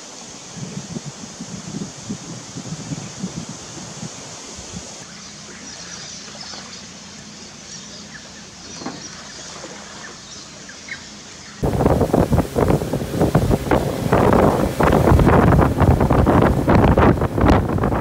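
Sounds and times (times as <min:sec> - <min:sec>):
light wind: 0:00.0 - 0:18.0
faint bird chirps: 0:05.0 - 0:11.6
steady low hum: 0:05.0 - 0:18.0.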